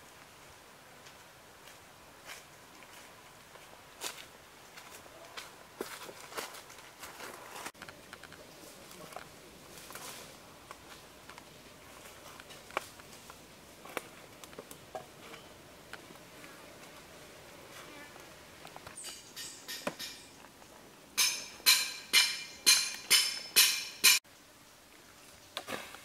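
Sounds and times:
footsteps on leaf litter: 0:01.0 - 0:07.8, 0:08.5 - 0:14.7.

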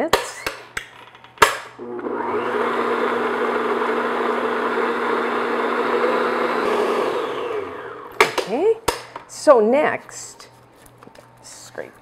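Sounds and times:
stand mixer motor running: 0:01.8 - 0:08.2.

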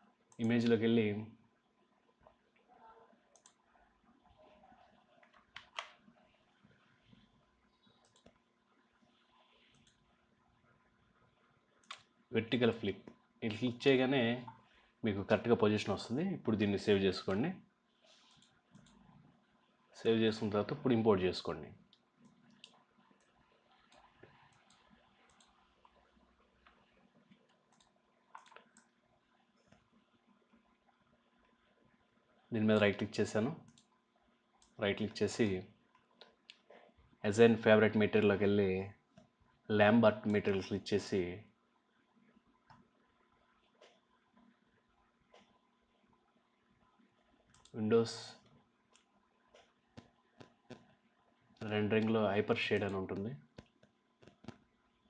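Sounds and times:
faint computer mouse clicks: 0:03.3 - 0:03.6, 0:05.2 - 0:06.0, 0:07.8 - 0:08.4, 0:09.7 - 0:10.0, 0:21.9 - 0:26.0, 0:26.6 - 0:28.9, 0:47.5 - 0:47.8.

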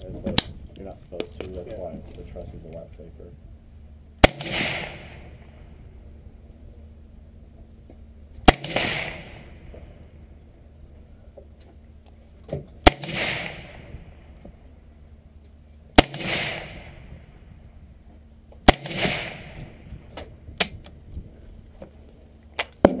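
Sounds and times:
suppressed rifle shots: 0:04.2 - 0:05.8, 0:08.4 - 0:10.0, 0:12.8 - 0:14.4, 0:16.0 - 0:17.4, 0:18.6 - 0:20.8.

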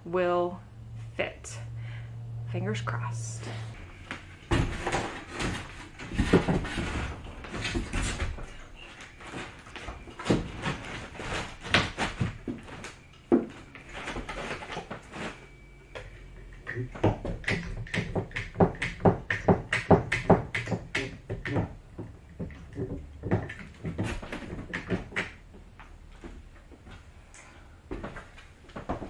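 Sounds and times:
wooden board knocks and thumps: 0:04.5 - 0:08.6, 0:16.8 - 0:25.6.

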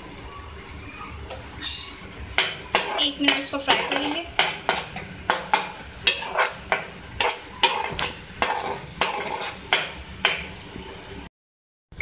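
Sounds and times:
onions sizzling in oil: 0:02.0 - 0:11.1
spoon scraping a metal pot: 0:02.4 - 0:10.4.

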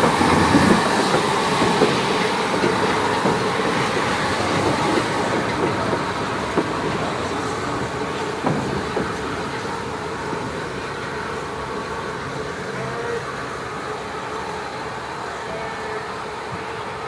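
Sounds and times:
steam locomotive running: 0:00.0 - 0:17.0
train wheels on rails: 0:00.0 - 0:17.0.

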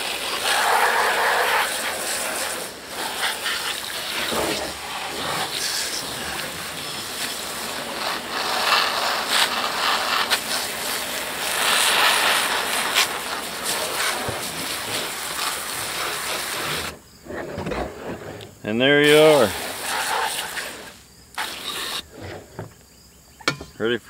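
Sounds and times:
hose spray spattering on metal: 0:00.0 - 0:17.0, 0:19.0 - 0:22.0.

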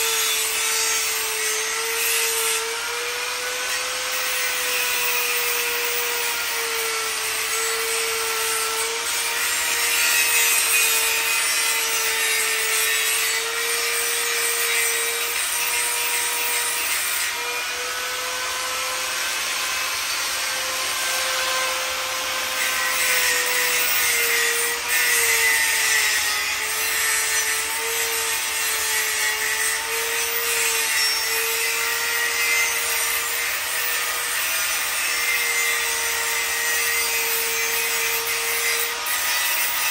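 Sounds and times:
angle grinder grinding metal: 0:00.0 - 0:39.9.

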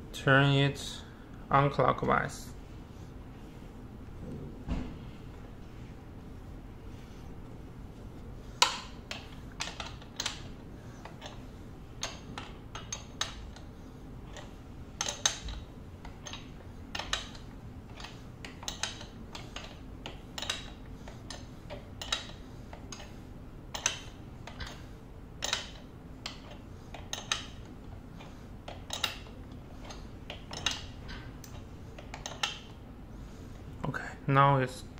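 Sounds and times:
wrench clicking on metal: 0:12.0 - 0:13.6, 0:14.3 - 0:21.4, 0:22.0 - 0:23.1, 0:23.7 - 0:24.8, 0:25.4 - 0:27.6, 0:28.7 - 0:29.2, 0:29.8 - 0:32.7.

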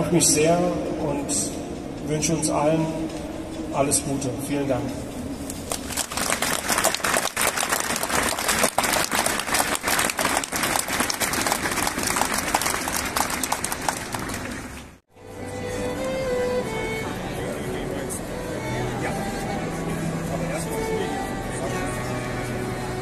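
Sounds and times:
audience applauding: 0:05.6 - 0:15.0
violin sustaining notes: 0:15.1 - 0:23.0.

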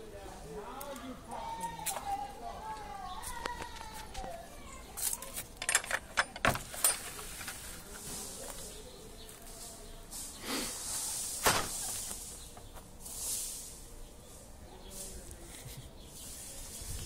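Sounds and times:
rustling hiss: 0:06.4 - 0:17.0.

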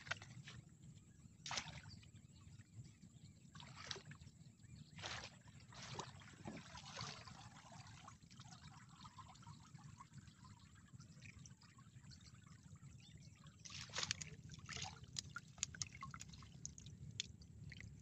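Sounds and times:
water trickling off net: 0:13.6 - 0:18.0
wet splashes and clicks: 0:13.6 - 0:18.0.

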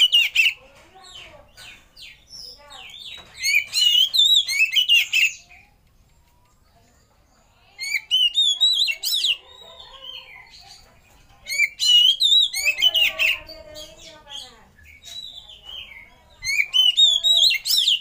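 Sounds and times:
bird singing whistled phrases: 0:03.0 - 0:05.7, 0:07.8 - 0:09.4, 0:11.5 - 0:13.4, 0:16.4 - 0:18.0.

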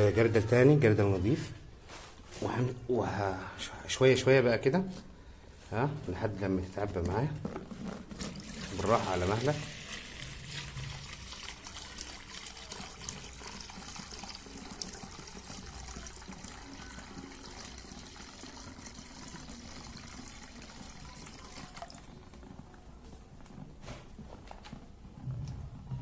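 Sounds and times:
liquid trickling through paper filter: 0:06.1 - 0:25.0.

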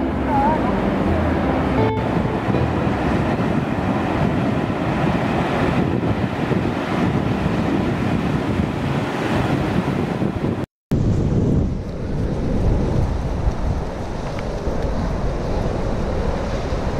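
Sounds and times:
ocean surf breaking: 0:00.0 - 0:10.6
wind buffeting microphone: 0:00.0 - 0:16.9.

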